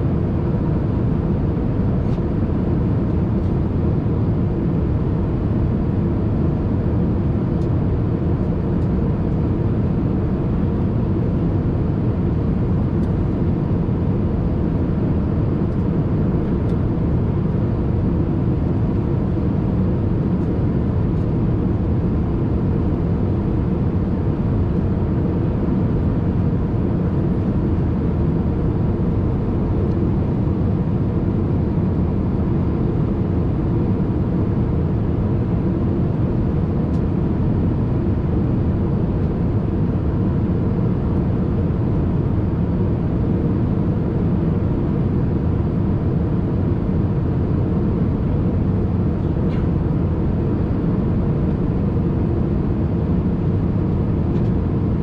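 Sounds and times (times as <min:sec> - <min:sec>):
airliner cabin engine drone: 0:00.0 - 0:55.0.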